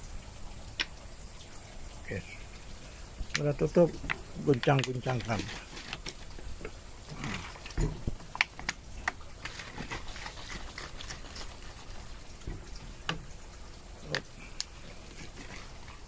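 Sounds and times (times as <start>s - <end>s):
liquid sloshing in plastic bottle: 3.3s - 13.4s, 14.1s - 16.0s.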